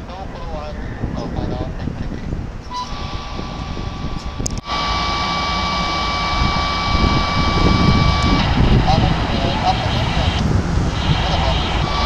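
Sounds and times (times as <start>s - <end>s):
aircraft engine drone: 2.7s - 12.0s
high whine: 2.7s - 12.0s.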